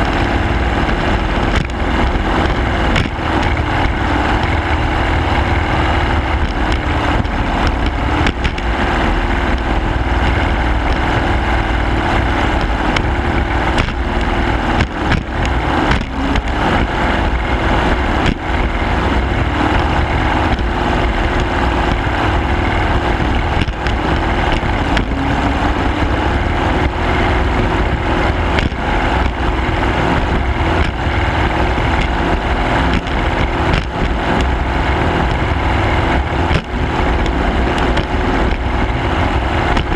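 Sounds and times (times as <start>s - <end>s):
boat motor at high speed: 0.0s - 39.9s.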